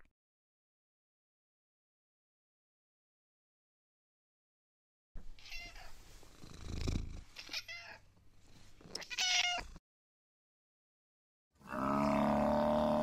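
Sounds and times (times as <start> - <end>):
cat meowing: 5.4 - 6.0, 7.4 - 8.0, 8.9 - 9.8.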